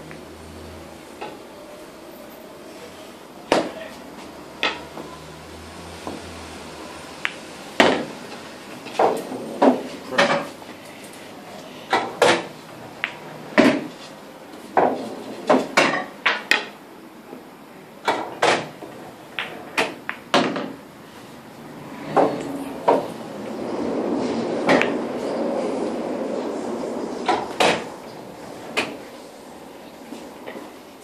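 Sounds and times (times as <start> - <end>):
pool balls clacking: 3.4 - 5.3, 6.0 - 6.4, 7.2 - 10.6, 11.9 - 20.9, 21.7 - 23.6, 24.2 - 25.2, 27.2 - 29.2
cue striking ball: 4.6 - 5.1, 7.2 - 8.2, 18.0 - 20.8, 24.6 - 25.0, 27.2 - 27.9.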